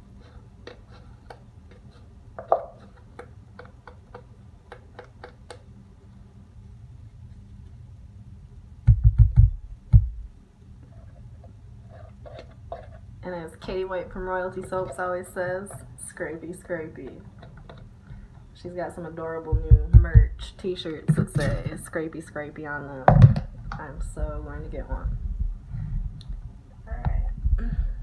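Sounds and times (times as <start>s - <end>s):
dull thumps: 8.8s - 10.3s, 19.5s - 20.4s.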